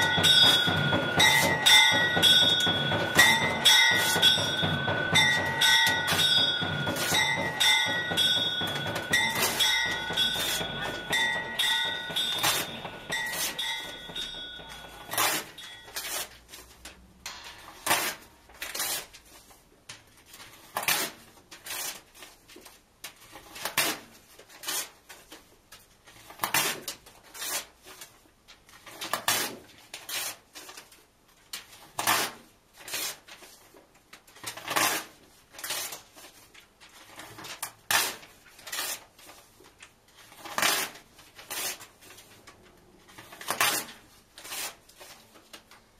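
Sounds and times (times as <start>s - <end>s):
paper ripping: 17.8s - 19.6s, 20.3s - 25.2s, 34.4s - 45.7s.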